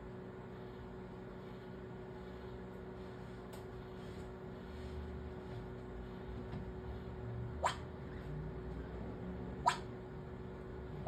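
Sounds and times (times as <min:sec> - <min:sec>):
low hum and rumble: 0:00.0 - 0:11.0.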